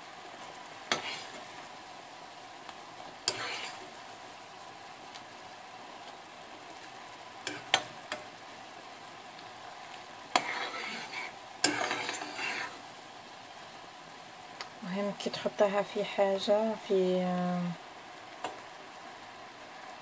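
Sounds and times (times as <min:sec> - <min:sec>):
syrup bubbling and sizzling: 0:00.0 - 0:20.0
spoon scraping pan: 0:00.9 - 0:01.5, 0:03.2 - 0:03.9, 0:07.4 - 0:08.3, 0:10.3 - 0:12.8.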